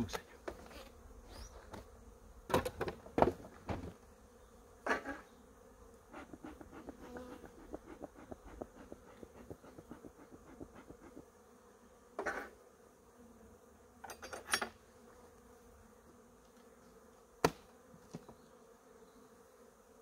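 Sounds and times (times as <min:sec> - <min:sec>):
bees buzzing: 0:00.0 - 0:20.0
knocks of wooden hive parts: 0:02.5 - 0:04.0, 0:17.4 - 0:18.4.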